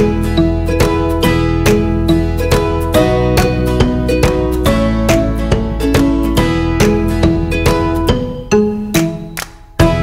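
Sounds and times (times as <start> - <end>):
plucked string music: 0.0 - 10.0.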